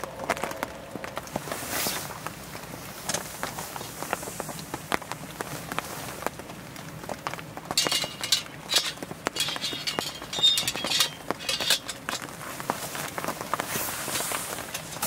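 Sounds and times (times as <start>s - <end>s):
clothing and glove rustling: 1.3s - 6.4s, 7.8s - 15.0s
metallic clinks of wire handle: 7.8s - 12.4s.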